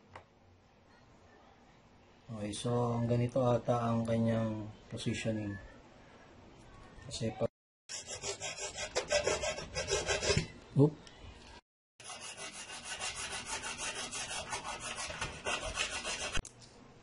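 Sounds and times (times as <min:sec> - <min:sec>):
hacksaw cutting plastic: 0:12.0 - 0:16.4.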